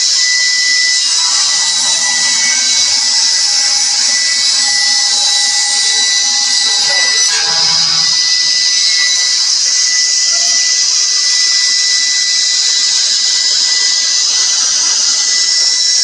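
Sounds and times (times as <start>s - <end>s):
panel saw cutting wood: 0.0s - 11.3s.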